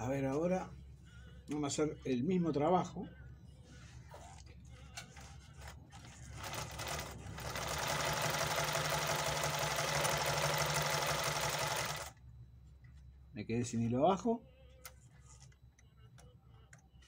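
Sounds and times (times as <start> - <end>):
sewing machine rattling: 6.4 - 12.1.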